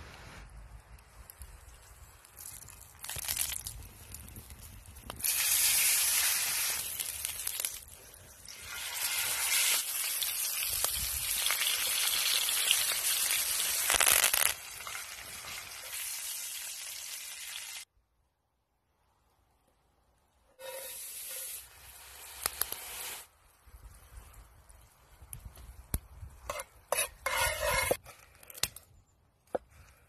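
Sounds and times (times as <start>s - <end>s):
steak sizzling in oil: 8.6s - 17.8s.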